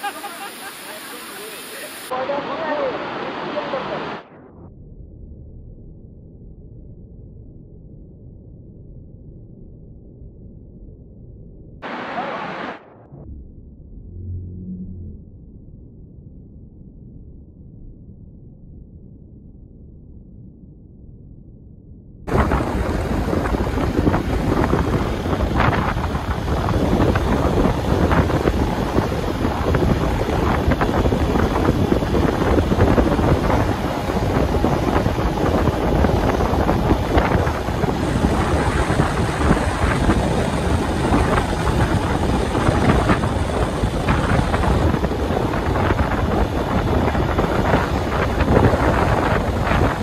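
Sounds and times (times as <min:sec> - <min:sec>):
small waterfall pouring: 0:00.0 - 0:02.1.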